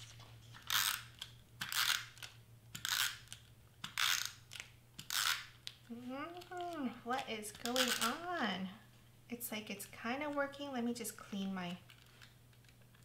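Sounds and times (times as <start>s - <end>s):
tape glue runner scraping: 0.0s - 5.5s.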